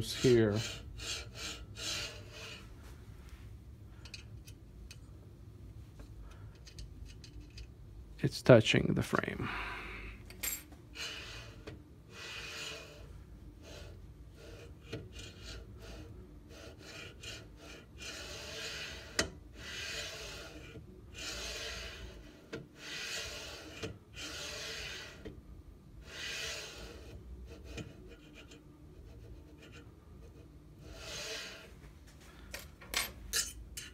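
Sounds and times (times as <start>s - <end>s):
gantry scraping along frame: 11.0s - 25.3s, 26.0s - 28.5s, 29.1s - 32.4s.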